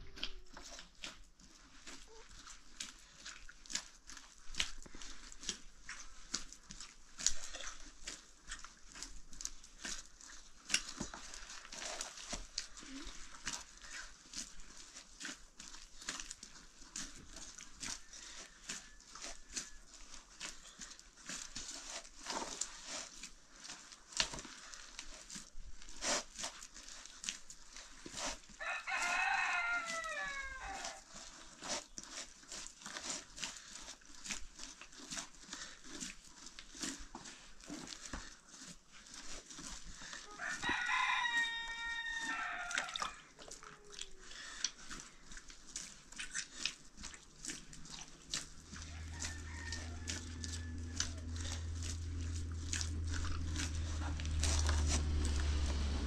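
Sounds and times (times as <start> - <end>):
rooster crowing: 28.6 - 31.0, 40.3 - 43.3, 48.8 - 51.8.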